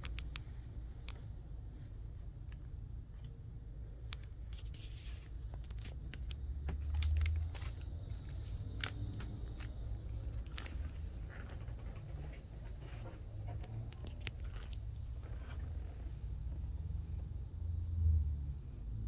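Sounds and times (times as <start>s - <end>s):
low handling rumble: 5.3s - 19.0s
plastic sleeves crinkling: 6.8s - 13.1s.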